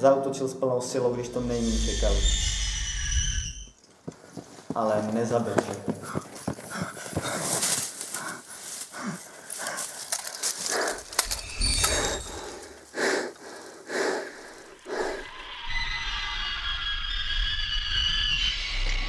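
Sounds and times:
low rumble: 0:01.0 - 0:03.7
man breathing hard: 0:06.0 - 0:15.4
sharp metallic clicks: 0:10.0 - 0:12.6.

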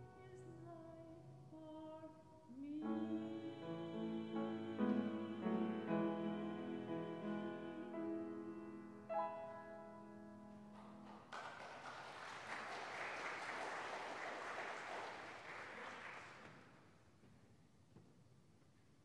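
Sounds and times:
piano chord ringing: 0:08.0 - 0:10.8
congregation applauding: 0:10.7 - 0:16.9.

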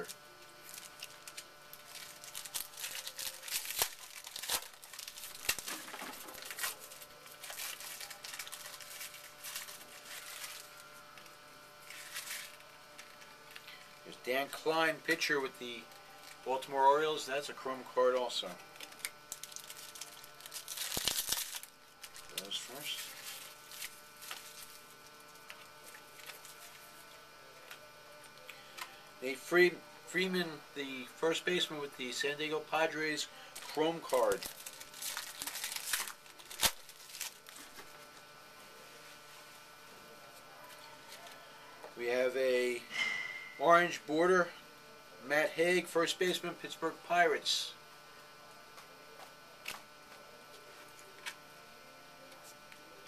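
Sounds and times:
foil wrapper crinkling: 0:00.0 - 0:15.2, 0:18.2 - 0:29.0, 0:32.9 - 0:38.3
faint steady hum: 0:00.0 - 0:53.0.

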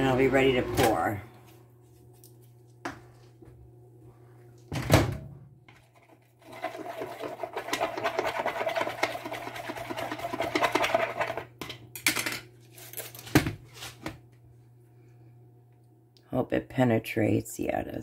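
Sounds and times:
stirrer scraping plastic jug: 0:05.8 - 0:11.5.

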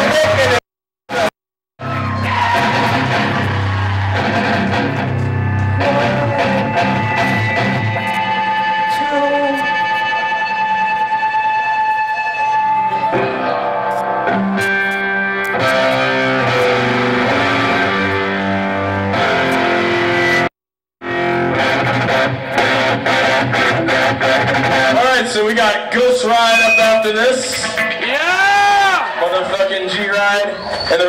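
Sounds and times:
distorted electric guitar chords: 0:00.0 - 0:30.0.

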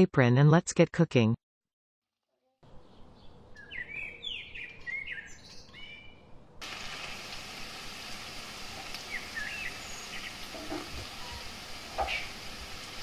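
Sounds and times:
birds chirping: 0:02.6 - 0:06.4, 0:08.2 - 0:13.0
onions sizzling in hot oil: 0:06.6 - 0:13.0.

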